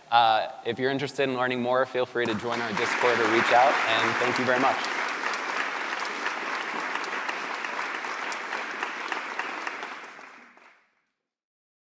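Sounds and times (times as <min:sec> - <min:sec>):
audience applauding: 0:02.2 - 0:10.8.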